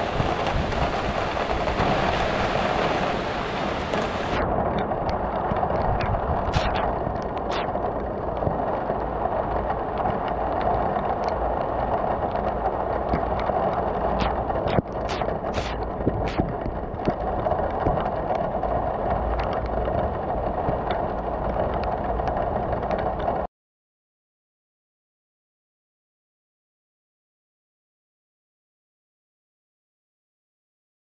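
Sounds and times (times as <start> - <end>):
raindrops ticking close by: 0.0 - 23.5
steady rain pouring: 0.0 - 23.5.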